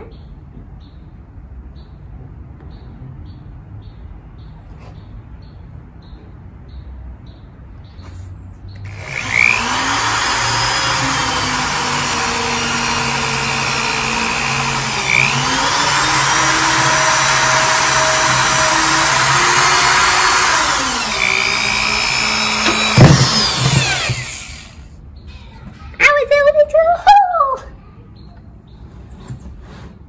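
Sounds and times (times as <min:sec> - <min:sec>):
power drill boring plastic: 0:08.8 - 0:24.9.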